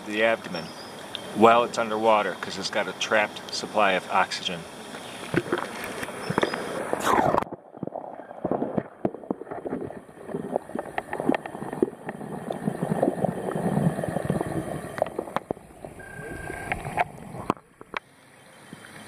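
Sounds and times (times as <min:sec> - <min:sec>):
water sloshing and gurgling: 0:04.7 - 0:19.0.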